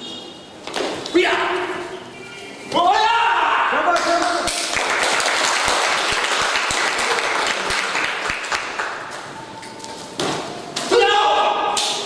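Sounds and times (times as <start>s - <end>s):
audience applauding: 4.0s - 9.1s.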